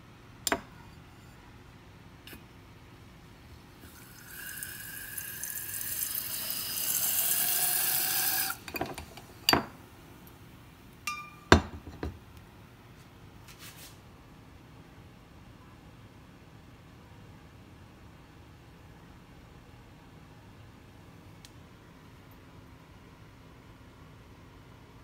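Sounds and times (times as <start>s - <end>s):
glassy clink: 11.1s - 11.8s.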